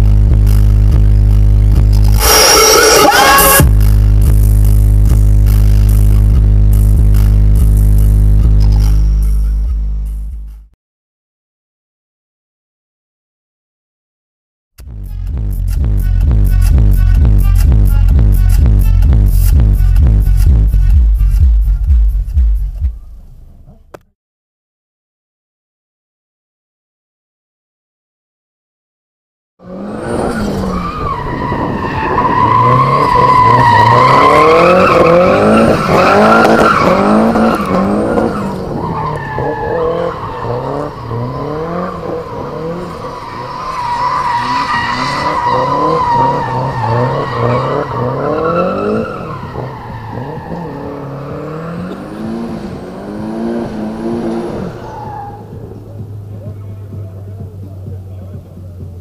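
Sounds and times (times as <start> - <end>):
car engine revving: 0.0 - 10.3, 29.6 - 59.0
tyres squealing: 2.1 - 3.7, 30.1 - 58.4.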